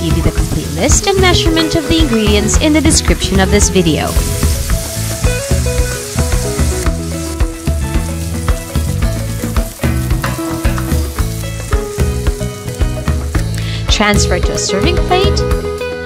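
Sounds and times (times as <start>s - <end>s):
fish sizzling in oil: 0.0s - 15.6s
background music: 0.0s - 16.0s.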